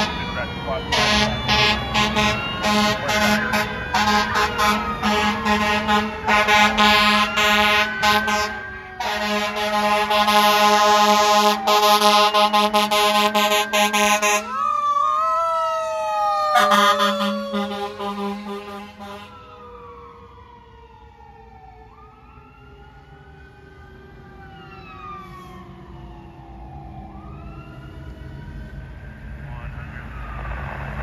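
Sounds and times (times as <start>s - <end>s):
fire engine air horns blasting: 0.0s - 14.7s, 16.3s - 19.6s
wailing siren: 0.0s - 31.0s.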